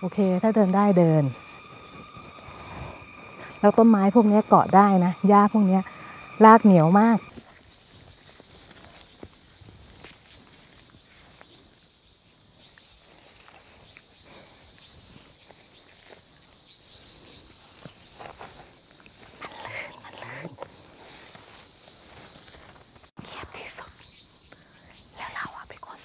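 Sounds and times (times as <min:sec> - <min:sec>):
high-pitched insect chorus: 0:00.0 - 0:26.0
footsteps rustling through grass: 0:07.3 - 0:19.4, 0:20.9 - 0:23.1.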